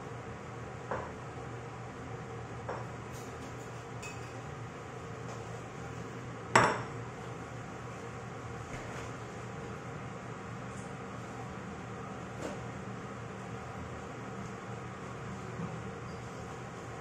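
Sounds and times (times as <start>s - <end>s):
steady low hum: 0.0s - 17.0s
kitchenware clinking: 3.6s - 4.4s.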